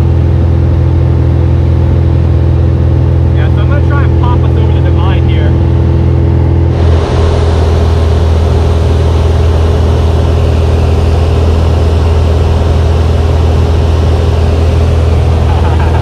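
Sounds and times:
aircraft engine drone: 0.0 - 16.0
rushing air noise: 6.6 - 16.0.

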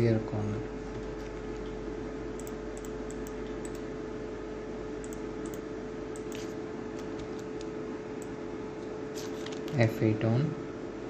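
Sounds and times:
electrical hum and hiss: 0.0 - 11.0
computer mouse clicks: 2.4 - 3.9, 5.0 - 5.6, 6.2 - 8.4.

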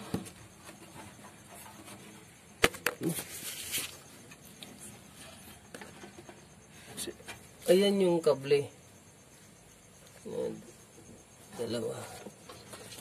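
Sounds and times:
rustling handling noise: 0.0 - 7.6.

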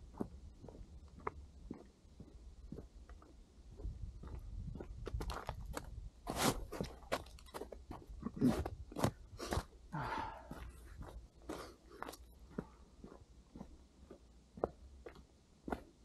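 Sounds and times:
footsteps crunching on snow: 3.8 - 7.5.

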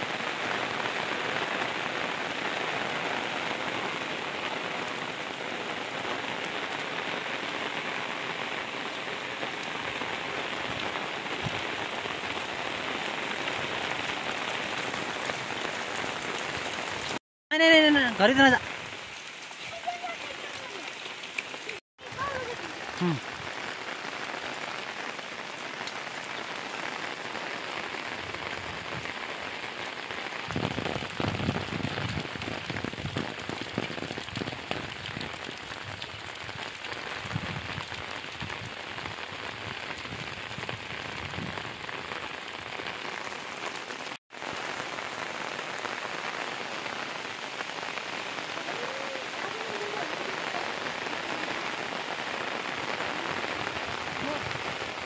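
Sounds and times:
steady rain: 0.0 - 55.0.

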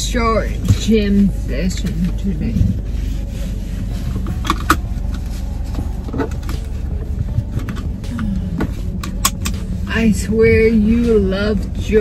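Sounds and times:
car engine idling: 0.0 - 12.0
seatbelt buckle clicks: 4.2 - 4.9, 9.0 - 9.6.

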